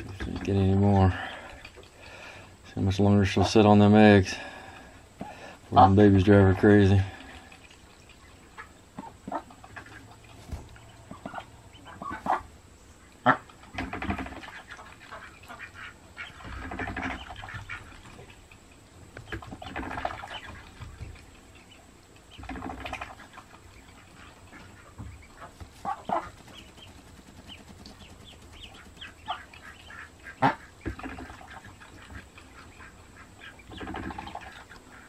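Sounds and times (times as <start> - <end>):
duck and ducklings calling: 5.2 - 18.4, 19.3 - 35.0.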